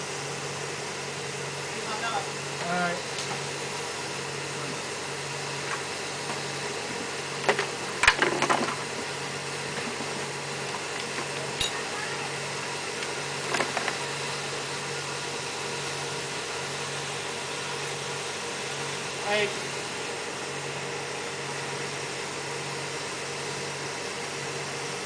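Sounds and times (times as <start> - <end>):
low machinery hum: 0.0 - 25.0
knocks and clatter: 7.5 - 8.8.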